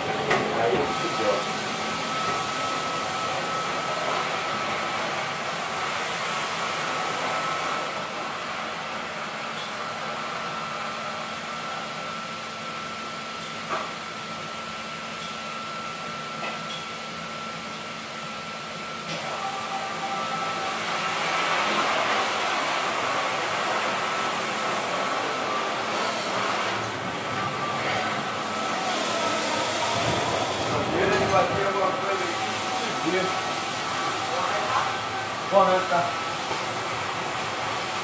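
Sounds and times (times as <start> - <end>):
floor scrubber motor whirring: 0.0 - 8.8, 19.1 - 38.0.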